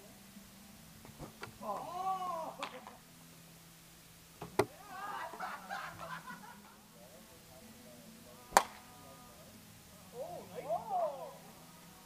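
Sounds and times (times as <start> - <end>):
voices and laughter: 4.7 - 7.3
plastic ball striking plastic bat: 8.5 - 8.8.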